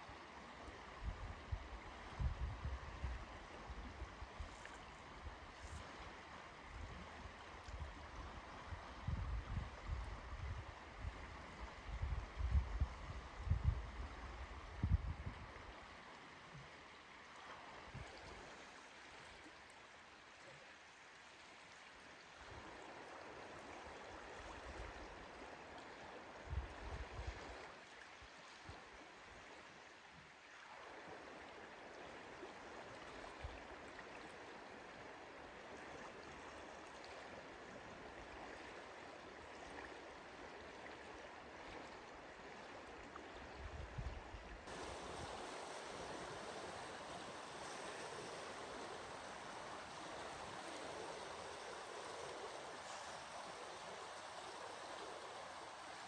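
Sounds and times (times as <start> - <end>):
river rushing: 44.6 - 56.0.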